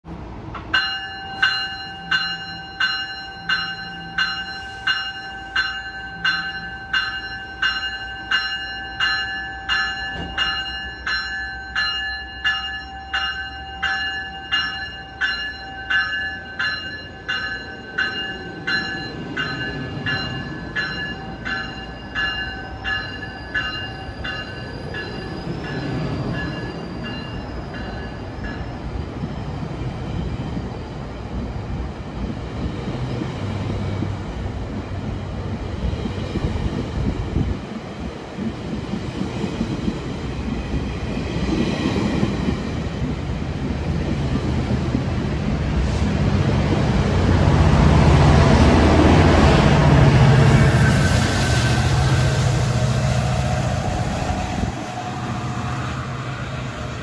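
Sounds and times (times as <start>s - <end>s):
train wheels rumbling on rails: 0.1s - 57.0s
train bell ringing: 0.7s - 29.1s.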